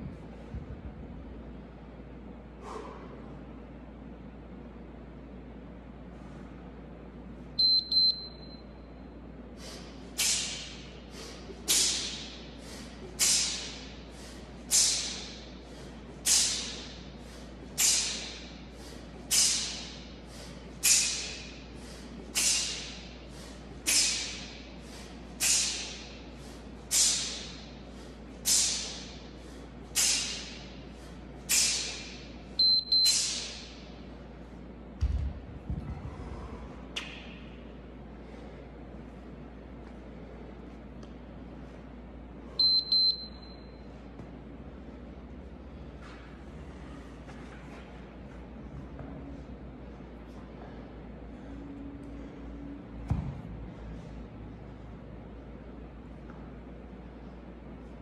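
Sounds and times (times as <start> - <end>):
electronic timer beep: 7.6 - 8.7, 32.6 - 33.4, 42.6 - 43.8
sharp hissing exhales: 9.6 - 32.2.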